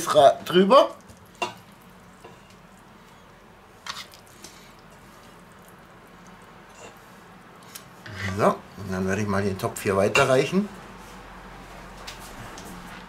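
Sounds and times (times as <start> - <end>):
wet squishes of sauce: 0.0 - 8.8.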